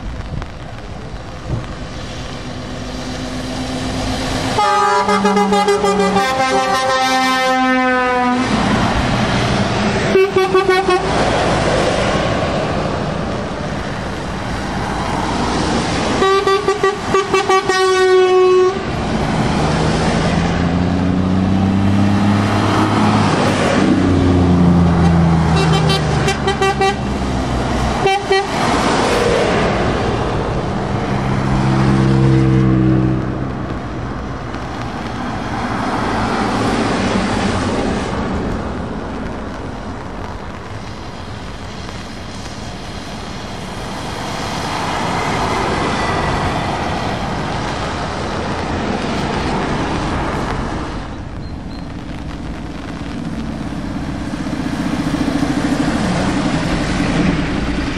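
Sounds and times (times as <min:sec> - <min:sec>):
diesel truck engines: 0:00.0 - 0:57.9
tyre hiss on wet road: 0:00.0 - 0:57.9
truck air horns blasting: 0:04.5 - 0:08.6, 0:10.0 - 0:11.2, 0:16.2 - 0:18.9, 0:25.5 - 0:27.1, 0:28.0 - 0:28.6.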